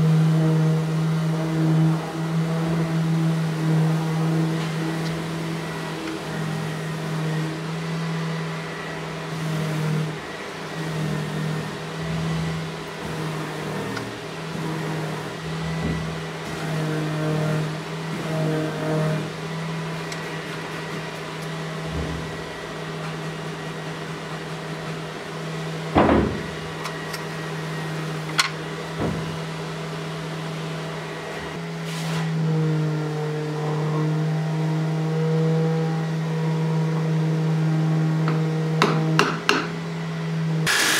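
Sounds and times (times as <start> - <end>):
electric motor humming: 0.0 - 31.6, 40.4 - 40.9.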